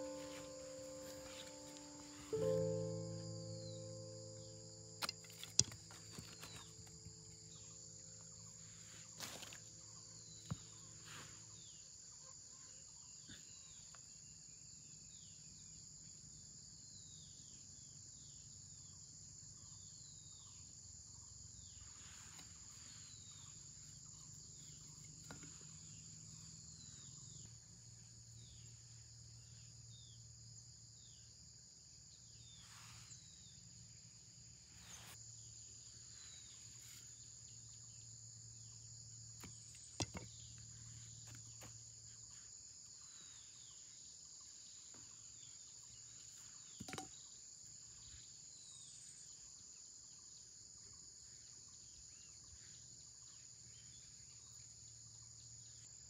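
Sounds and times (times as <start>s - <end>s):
insects droning: 0.0s - 56.0s.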